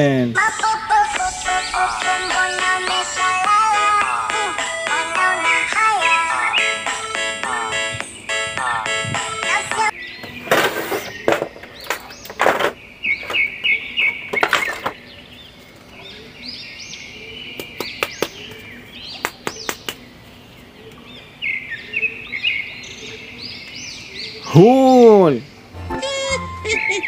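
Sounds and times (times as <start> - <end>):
small birds chirping: 5.2 - 26.2.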